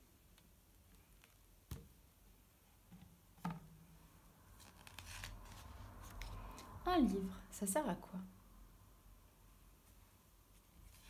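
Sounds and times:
pages rustling: 0:04.5 - 0:06.8, 0:10.5 - 0:11.0.

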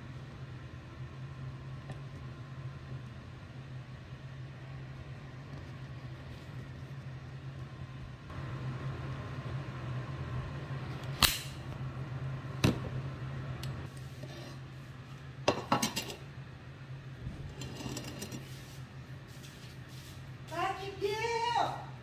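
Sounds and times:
steady low hum: 0:00.0 - 0:20.5
dishes and utensils clinking: 0:15.5 - 0:16.2.

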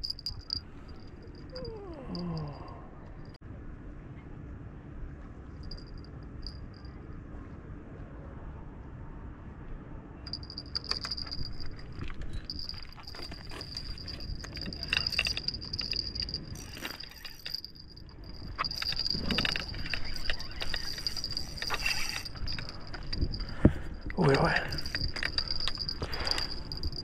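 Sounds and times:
clinking and rattling handling: 0:00.0 - 0:02.6, 0:10.3 - 0:27.0.

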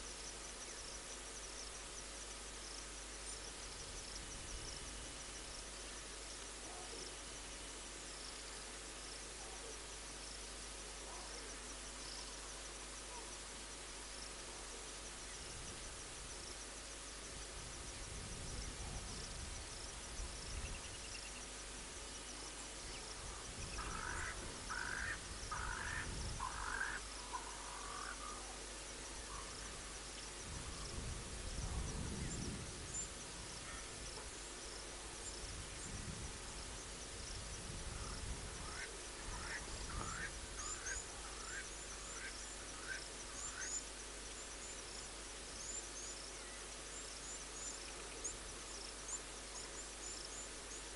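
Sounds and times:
faint high-pitched chirping: 0:17.3 - 0:50.9.

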